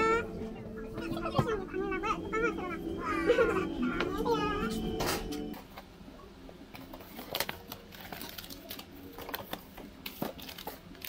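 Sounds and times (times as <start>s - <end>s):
packaging crinkling: 7.1s - 11.0s.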